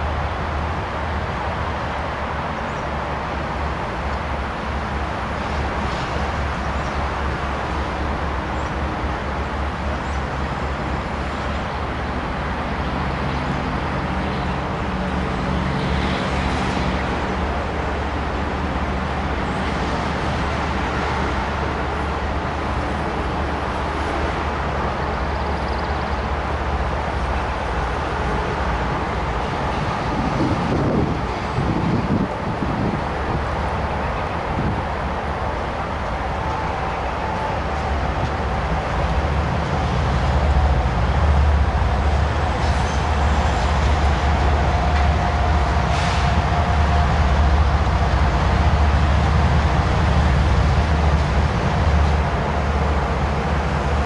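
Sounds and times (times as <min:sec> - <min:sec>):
diesel locomotive engine drone: 0:00.0 - 0:54.0
train rumble: 0:00.0 - 0:54.0.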